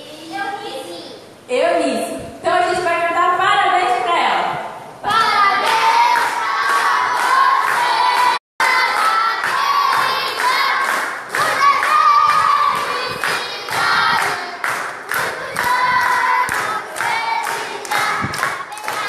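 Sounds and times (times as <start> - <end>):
group singing children's song: 5.0 - 19.0
rhythmic clapping: 5.1 - 19.0.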